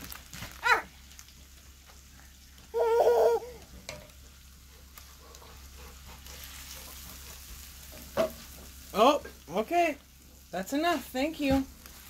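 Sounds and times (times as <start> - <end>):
meat sizzling in a skillet: 0.0 - 12.0
spatula tapping a pan: 6.3 - 8.8.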